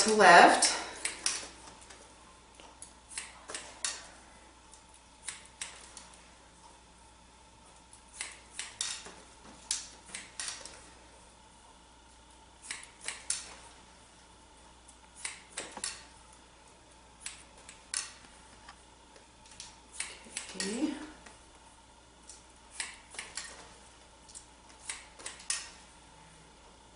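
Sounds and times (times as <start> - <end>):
scissors snipping hair: 0.0 - 2.0, 2.7 - 4.1, 4.7 - 6.2, 7.7 - 10.8, 12.6 - 13.6, 14.9 - 16.1, 17.2 - 18.3, 19.4 - 21.1, 22.2 - 23.7, 24.3 - 25.8.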